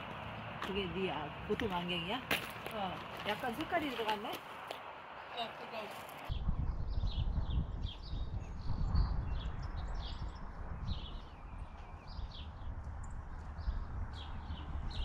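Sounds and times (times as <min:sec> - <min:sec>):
small birds chirping: 0:05.1 - 0:15.0
steady low rumble: 0:06.3 - 0:15.0.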